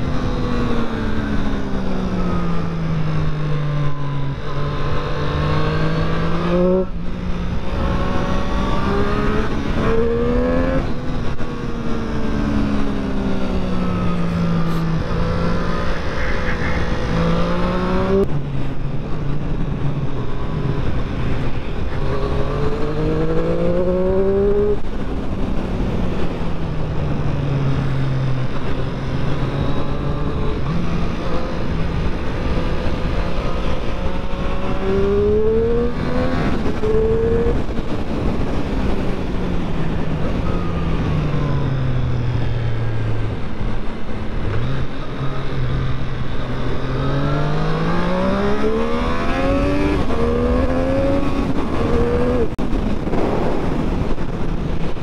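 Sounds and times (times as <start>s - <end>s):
motorcycle engine accelerating: 0.0s - 55.0s
steady rushing noise: 0.0s - 55.0s.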